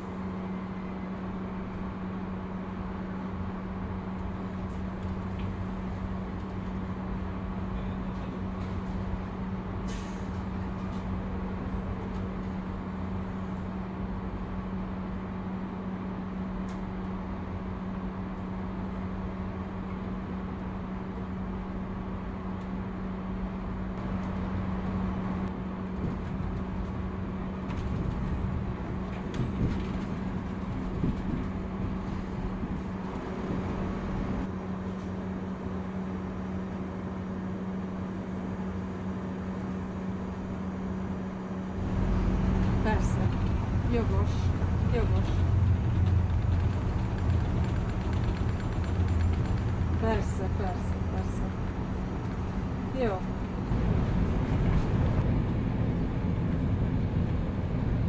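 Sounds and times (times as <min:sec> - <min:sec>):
train wheels rumbling on track: 0:00.0 - 0:58.0
low hum: 0:39.0 - 0:58.0
rattling and knocks: 0:45.0 - 0:51.1.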